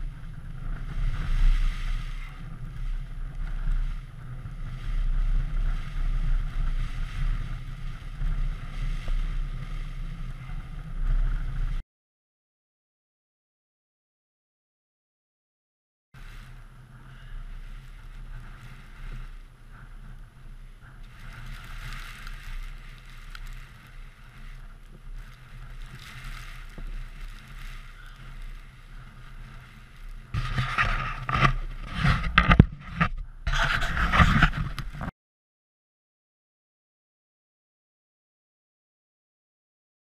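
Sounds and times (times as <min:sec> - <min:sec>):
wind buffeting microphone: 0:00.0 - 0:11.8, 0:16.2 - 0:35.1.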